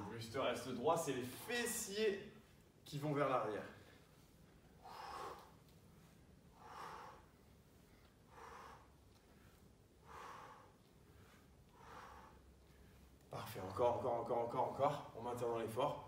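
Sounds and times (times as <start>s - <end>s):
person breathing hard: 4.7s - 13.3s.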